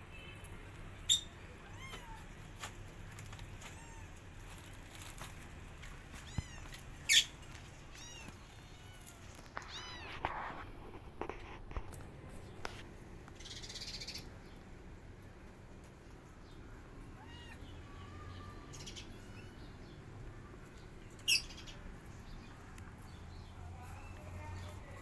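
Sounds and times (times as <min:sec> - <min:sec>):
kittens mewing: 0:06.1 - 0:10.3, 0:17.0 - 0:19.6.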